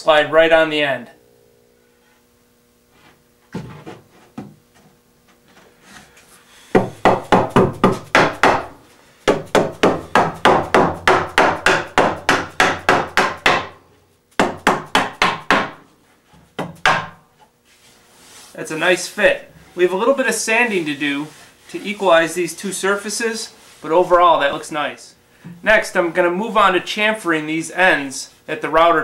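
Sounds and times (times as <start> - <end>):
mallet tapping wood: 6.8 - 8.7, 9.3 - 13.8.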